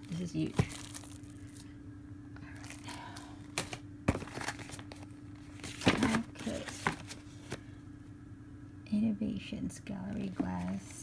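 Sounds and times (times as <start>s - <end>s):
plastic bag crinkling: 0.0s - 1.7s
faint steady hum: 0.0s - 11.0s.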